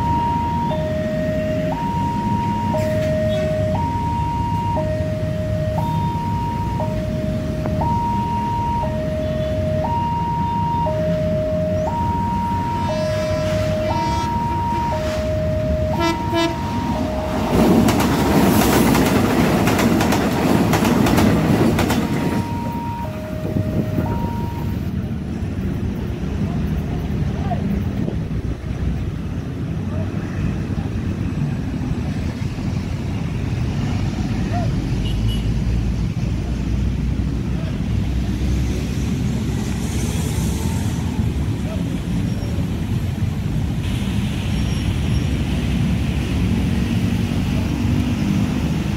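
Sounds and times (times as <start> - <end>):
two-tone crossing alarm: 0.0 - 18.1, 21.7 - 24.9, 40.4 - 41.4
road traffic rumble: 0.0 - 48.9
train wheels clattering over rails: 17.3 - 22.6.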